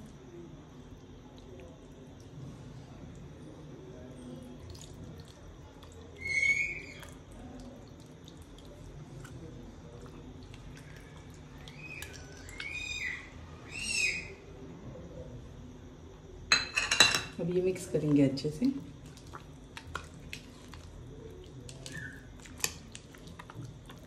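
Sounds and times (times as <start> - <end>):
bird calling: 6.2 - 7.1, 11.6 - 14.4.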